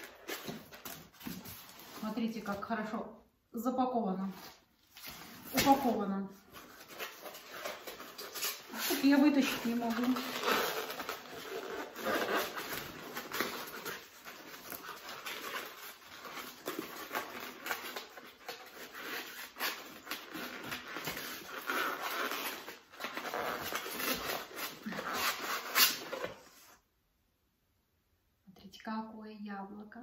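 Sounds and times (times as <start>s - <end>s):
packaging rustling and crinkling: 4.3s - 26.8s.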